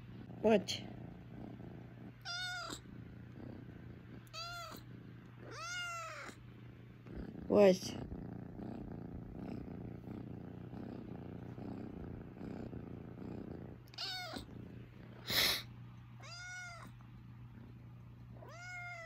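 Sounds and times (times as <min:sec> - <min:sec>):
kitten purring: 0:00.0 - 0:19.0
kitten meowing: 0:02.2 - 0:02.8, 0:04.3 - 0:04.8, 0:05.4 - 0:06.4, 0:13.9 - 0:14.5, 0:16.2 - 0:16.9, 0:18.4 - 0:19.0.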